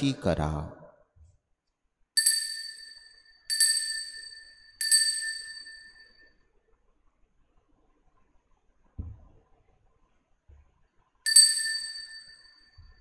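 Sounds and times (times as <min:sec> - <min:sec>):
altar bell ringing: 0:02.2 - 0:06.4, 0:11.3 - 0:13.0.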